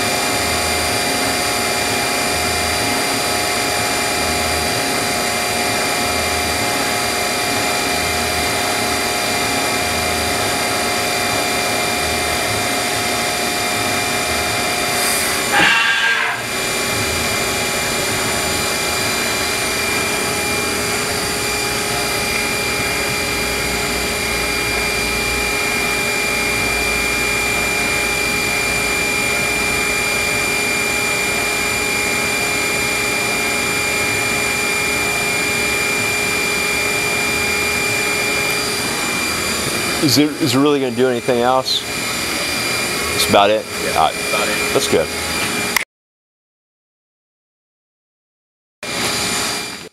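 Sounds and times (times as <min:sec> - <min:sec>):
machine whine over hiss: 0:00.0 - 0:45.8, 0:48.8 - 0:49.9.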